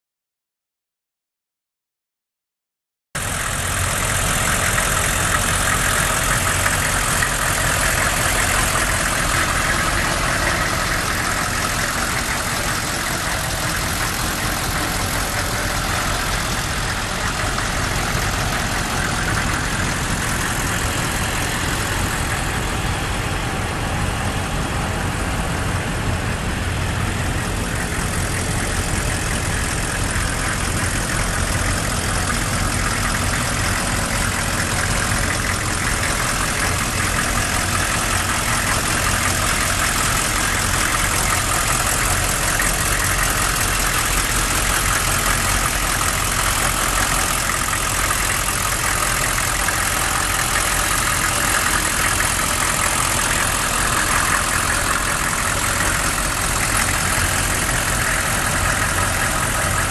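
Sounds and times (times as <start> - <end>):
diesel engine idling: 3.2 - 59.9.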